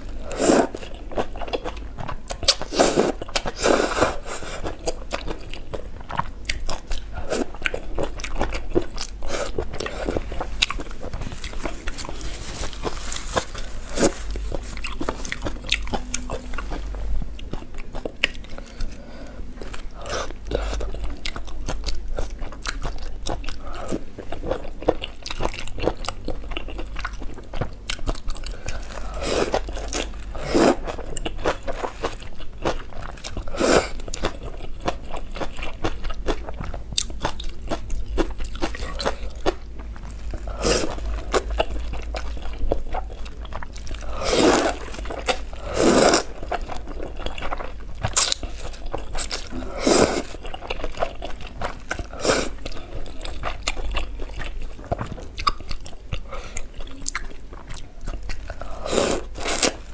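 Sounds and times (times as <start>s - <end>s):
person chewing noodles: 0.0s - 59.9s
loud noodle slurps: 44.2s - 44.8s, 45.7s - 46.3s, 49.6s - 50.4s, 58.8s - 59.7s.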